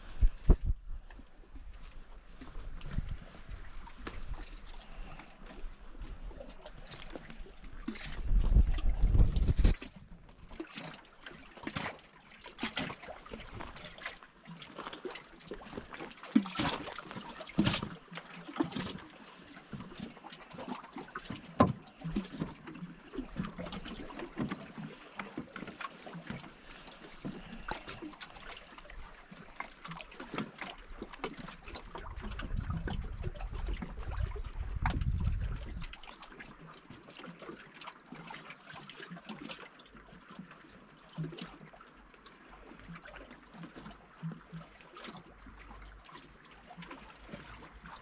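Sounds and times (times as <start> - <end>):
wind rumbling on microphone: 0.0 - 10.2, 31.9 - 36.0
waves lapping against shore: 0.0 - 48.0.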